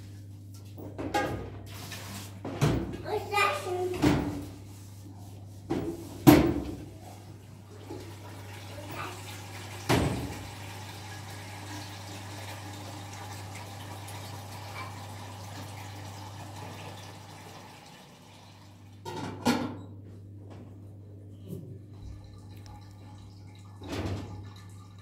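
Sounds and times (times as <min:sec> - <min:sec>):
rushing like running water: 0:07.9 - 0:18.2.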